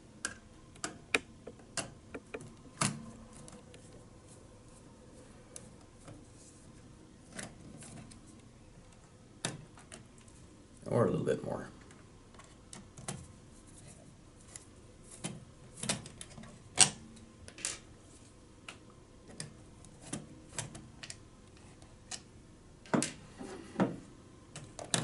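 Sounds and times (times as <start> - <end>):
screwdriver clicking and tapping: 0.8 - 2.5.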